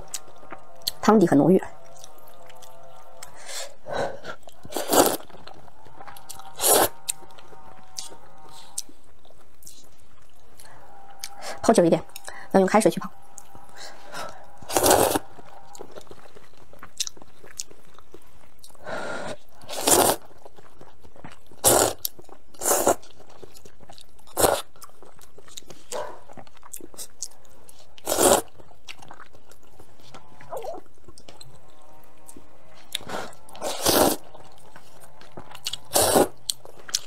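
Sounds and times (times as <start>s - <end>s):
chewing: 0.0s - 37.0s
person slurping noodles: 3.4s - 5.4s, 6.2s - 7.1s, 14.6s - 16.0s, 18.8s - 20.3s, 21.6s - 23.0s, 24.3s - 24.7s, 28.0s - 28.5s, 32.9s - 34.8s, 35.6s - 36.5s.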